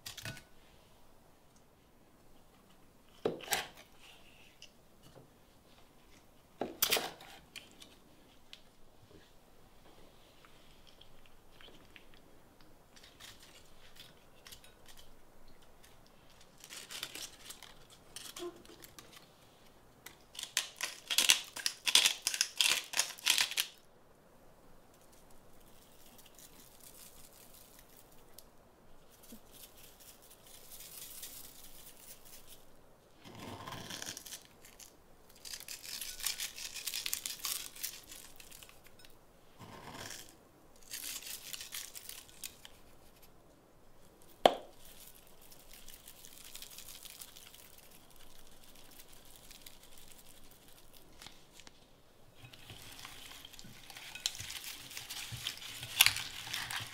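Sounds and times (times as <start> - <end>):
hands tearing peppers: 10.8 - 19.3, 20.0 - 23.8, 33.6 - 39.0, 40.0 - 43.3, 44.2 - 51.7, 52.5 - 56.9
rapid crisp crackles: 12.9 - 23.9, 24.9 - 56.9
rustling of ingredients in bowl: 24.9 - 43.4, 44.0 - 56.9.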